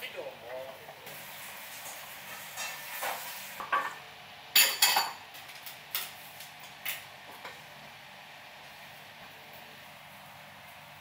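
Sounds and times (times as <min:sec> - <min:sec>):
dishes and utensils clinking: 0:02.4 - 0:04.0, 0:04.6 - 0:05.2.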